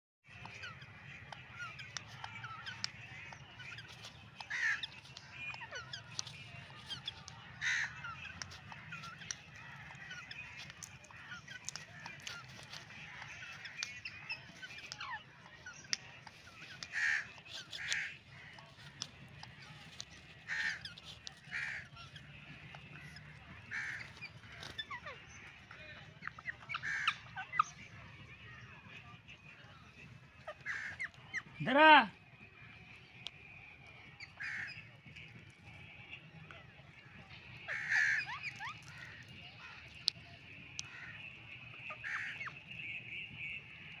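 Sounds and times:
faint small birds chirping: 0.2s - 44.0s
parakeets squawking harshly: 0.3s - 27.7s, 30.4s - 31.7s, 34.3s - 34.8s, 37.7s - 39.8s, 41.9s - 42.6s.

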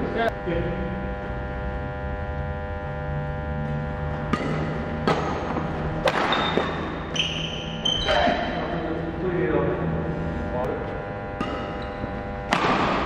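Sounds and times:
steady electrical hum: 0.0s - 13.0s
racquet striking shuttlecock: 4.3s - 7.2s, 11.4s - 13.0s
shoes squeaking on wooden floor: 6.2s - 8.6s.

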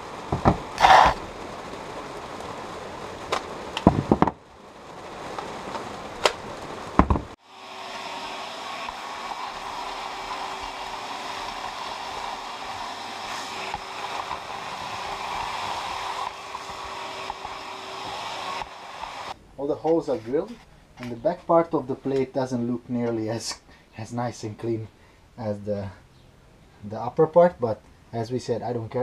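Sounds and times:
heavy rain hiss: 0.0s - 26.0s
vacuum cleaner humming: 7.4s - 19.4s.

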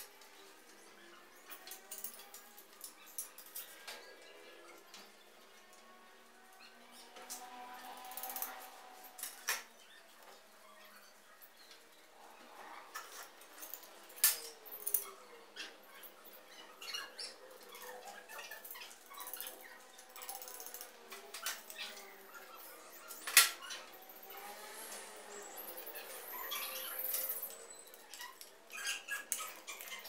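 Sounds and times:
small clicks and rustling: 0.0s - 6.0s, 7.0s - 15.2s, 15.9s - 30.0s
metal tools clacking on metal: 1.4s - 5.1s, 17.2s - 24.7s.

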